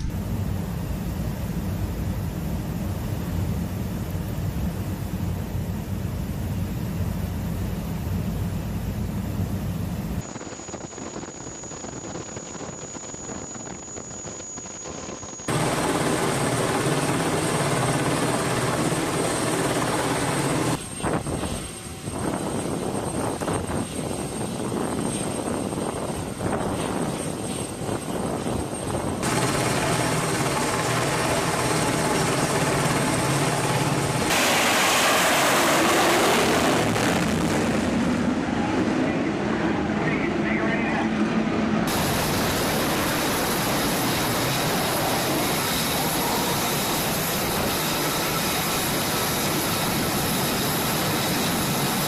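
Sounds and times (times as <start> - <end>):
aircraft engine noise: 0.0 - 52.0
wind noise: 9.3 - 15.5, 20.7 - 29.3.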